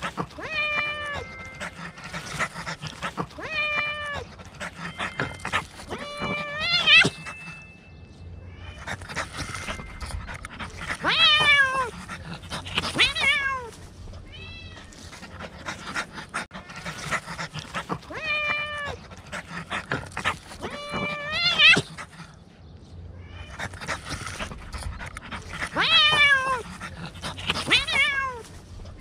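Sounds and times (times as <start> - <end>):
cat meowing: 0.3 - 1.7, 3.3 - 4.3, 11.0 - 12.0, 12.8 - 15.1, 18.1 - 19.0, 23.2 - 23.7, 25.7 - 26.7, 27.5 - 28.4.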